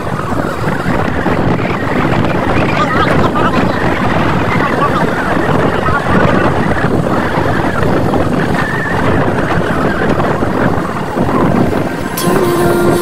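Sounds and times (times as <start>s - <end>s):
wind rushing over microphone: 0.0s - 13.0s
short steady tone: 12.1s - 13.0s.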